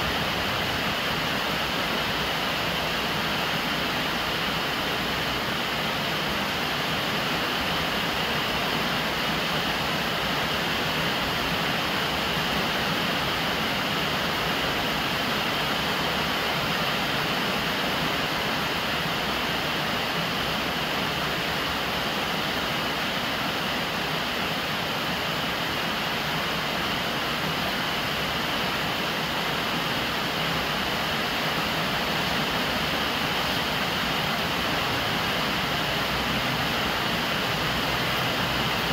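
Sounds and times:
steady rainfall: 0.0s - 38.9s.

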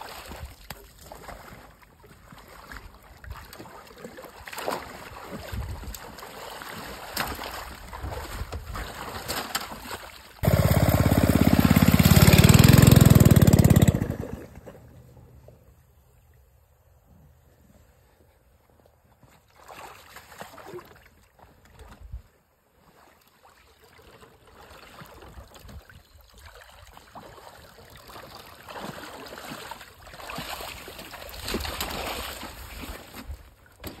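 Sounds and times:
water sloshing around wading legs: 0.0s - 10.4s, 18.9s - 34.0s.

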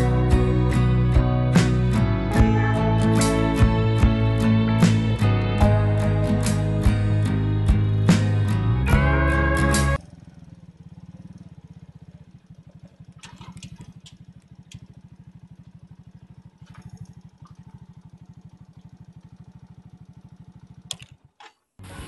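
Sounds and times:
guitar music: 0.0s - 10.0s
moped engine idling: 0.0s - 22.0s.

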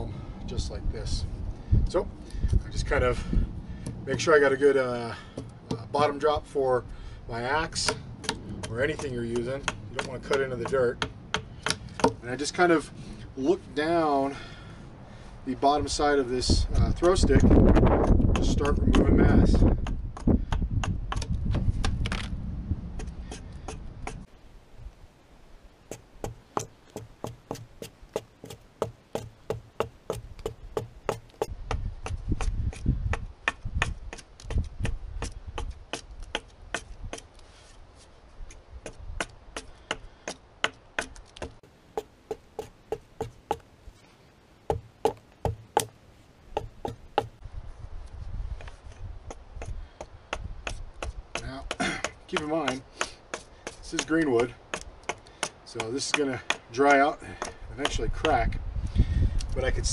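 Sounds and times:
hatchet chopping wood: 5.3s - 6.1s, 7.7s - 12.2s, 17.0s - 22.3s, 23.0s - 24.2s, 25.9s - 37.3s, 38.8s - 43.6s, 44.7s - 46.0s, 46.6s - 47.4s, 48.6s - 58.5s.

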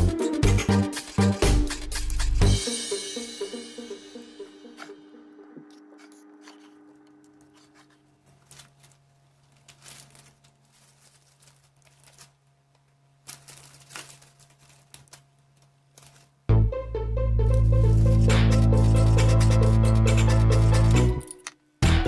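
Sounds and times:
background music: 0.0s - 7.9s, 16.5s - 22.0s
low steady hum: 3.3s - 21.9s
plastic wrapper crinkling: 6.0s - 16.5s.

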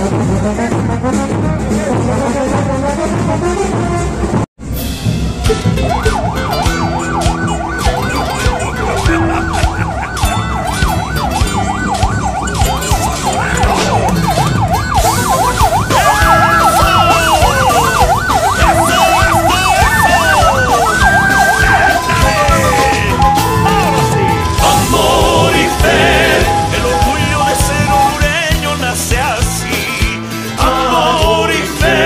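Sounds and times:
siren tones and wails: 5.2s - 28.7s
ambulance siren yelping: 5.3s - 29.4s.

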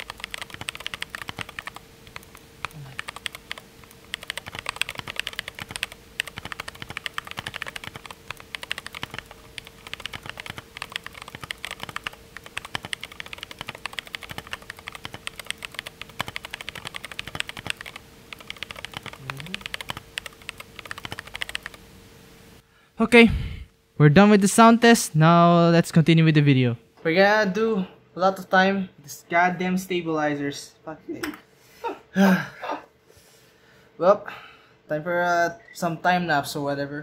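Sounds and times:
mechanical keyboard typing: 0.0s - 21.8s.

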